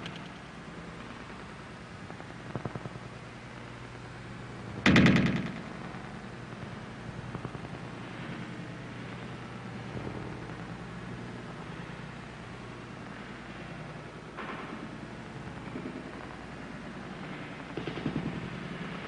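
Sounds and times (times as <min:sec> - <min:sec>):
steady low hum: 0:00.0 - 0:19.0
burst of rapid sharp cracks: 0:04.8 - 0:06.3, 0:17.1 - 0:19.0.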